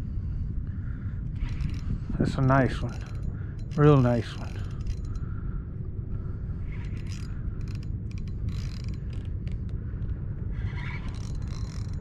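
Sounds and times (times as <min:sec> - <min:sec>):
low wind rumble: 0:00.0 - 0:12.0
fishing reel clicking and whirring: 0:01.3 - 0:05.4, 0:06.7 - 0:12.0.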